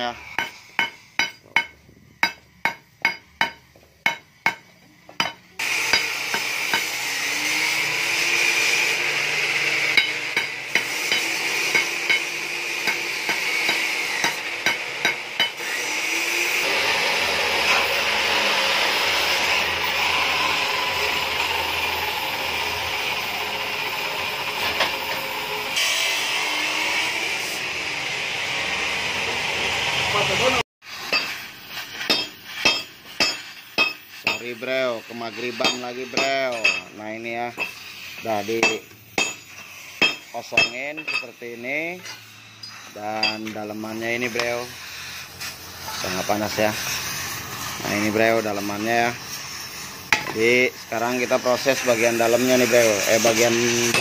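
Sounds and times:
welding torch hissing: 0:00.0 - 0:54.0
hammer striking steel tube: 0:00.2 - 0:07.0, 0:09.9 - 0:15.6, 0:31.0 - 0:34.8, 0:35.4 - 0:37.9, 0:38.6 - 0:41.4, 0:42.0 - 0:43.7, 0:50.1 - 0:50.4.

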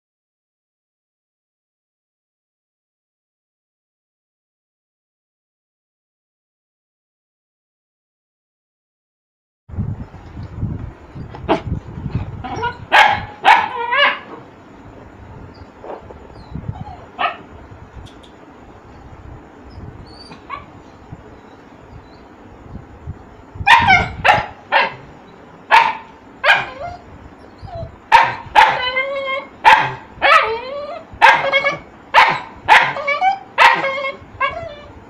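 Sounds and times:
puppy barking and yelping: 0:12.4 - 0:14.5, 0:15.5 - 0:17.6, 0:19.8 - 0:21.7, 0:23.6 - 0:25.1, 0:25.7 - 0:35.0.

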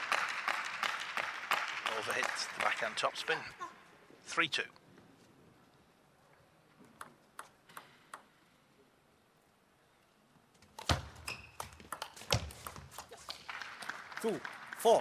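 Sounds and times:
table tennis ball bouncing: 0:07.0 - 0:08.3, 0:10.8 - 0:13.3
table tennis rally clicks: 0:10.8 - 0:13.4.

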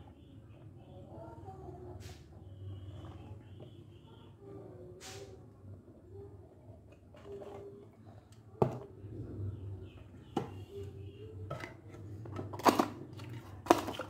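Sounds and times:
plastic cups clattering: 0:06.8 - 0:09.0, 0:10.3 - 0:14.0
plastic cups knocking on table: 0:11.5 - 0:14.0.

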